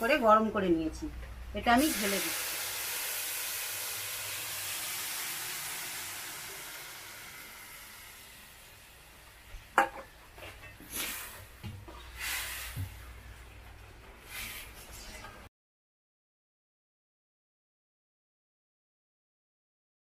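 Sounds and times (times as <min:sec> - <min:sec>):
water sizzling on hot rice: 0:01.7 - 0:09.8.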